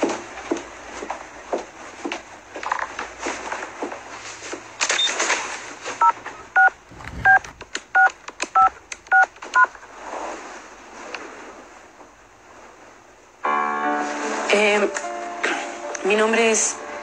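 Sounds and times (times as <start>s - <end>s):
touch-tone keypad beeps: 6.6s - 7.4s, 8.0s - 9.7s.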